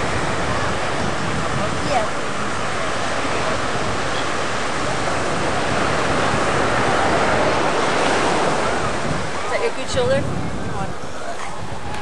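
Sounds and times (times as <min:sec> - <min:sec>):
ocean surf on sandy beach: 0:00.0 - 0:12.0.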